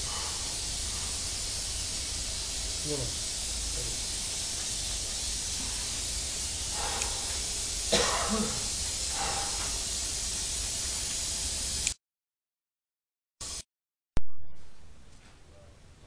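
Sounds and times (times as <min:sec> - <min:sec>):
recording hiss: 0:00.0 - 0:12.0
low hum: 0:14.2 - 0:15.6.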